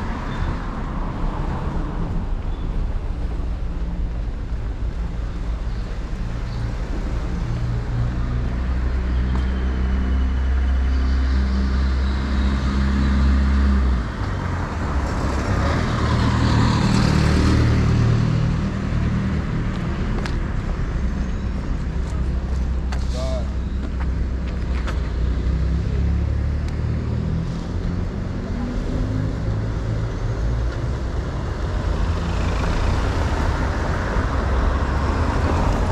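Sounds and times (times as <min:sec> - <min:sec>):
traffic passing: 0:00.0 - 0:35.9
vehicle engine humming: 0:00.0 - 0:35.9.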